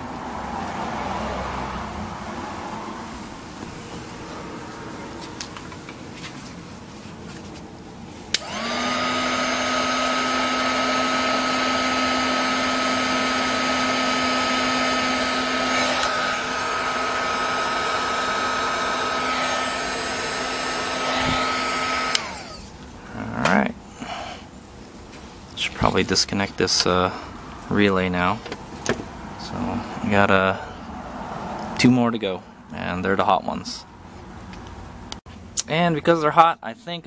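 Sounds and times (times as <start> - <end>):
hot-air blower fan hissing: 8.1 - 22.9.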